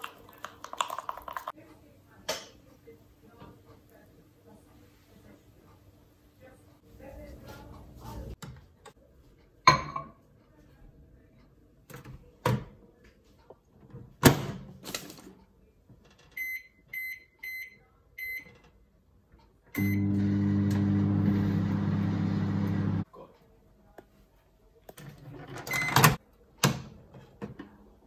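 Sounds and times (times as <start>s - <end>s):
microwave keypad beeps: 16.4s - 18.5s, 19.8s - 20.9s, 25.7s - 26.1s
microwave humming: 19.8s - 23.0s.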